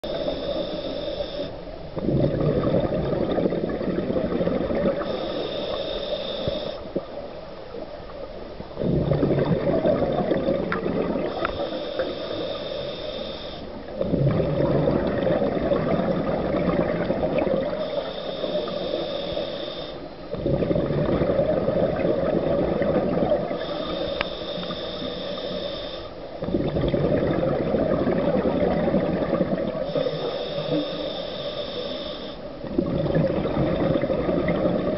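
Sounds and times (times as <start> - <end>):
hissing regulator inhale: 0.0 - 1.7, 4.9 - 7.0, 11.2 - 13.9, 17.6 - 20.2, 23.5 - 26.4, 29.7 - 32.6
bubbling exhale underwater: 2.0 - 5.3, 8.8 - 11.7, 14.0 - 18.5, 20.3 - 24.0, 26.4 - 31.0, 32.6 - 34.9.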